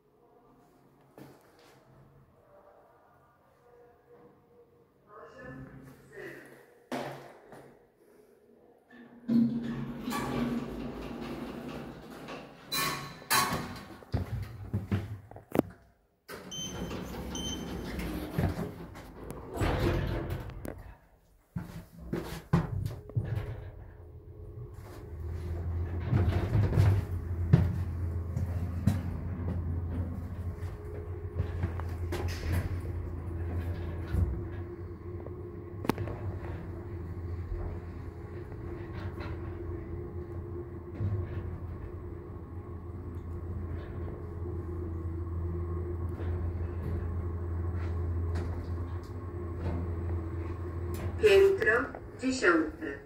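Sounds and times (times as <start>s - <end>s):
lift drive humming: 22.8s - 53.0s.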